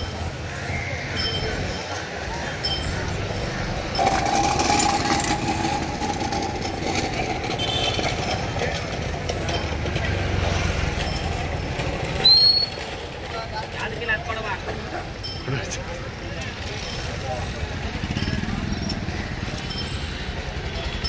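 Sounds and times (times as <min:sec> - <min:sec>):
vehicle engines: 0:00.0 - 0:21.0
people talking: 0:13.2 - 0:21.0.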